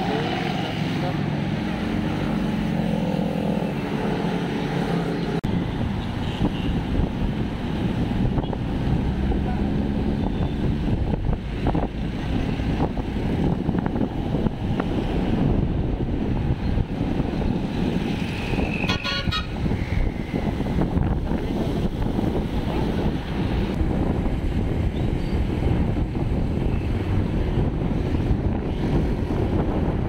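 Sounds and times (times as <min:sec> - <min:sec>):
traffic rumble: 0:00.0 - 0:30.0
wind rushing over microphone: 0:00.0 - 0:30.0
vehicle horn toot: 0:18.8 - 0:19.6.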